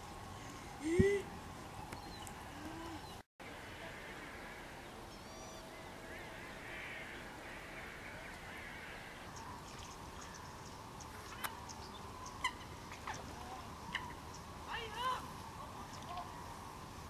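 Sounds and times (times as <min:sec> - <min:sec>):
waterbirds calling: 0:03.9 - 0:16.7.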